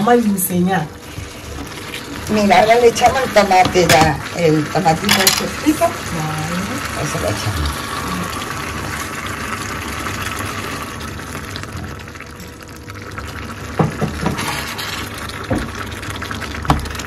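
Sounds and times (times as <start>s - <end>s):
food sizzling in a pan: 0.0s - 17.0s
sauce pouring: 7.6s - 17.0s.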